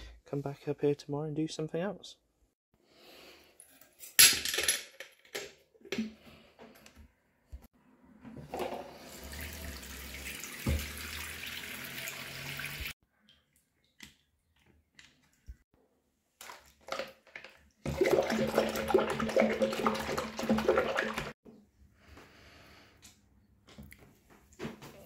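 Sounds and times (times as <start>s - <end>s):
tap running into sink: 10.3s - 11.6s
water splashing: 17.8s - 21.4s.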